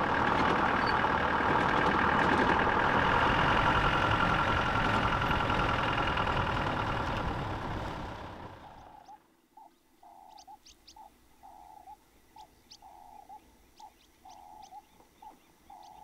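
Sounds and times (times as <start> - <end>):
jeep engine running: 0.0 - 9.1
road noise: 0.0 - 9.4.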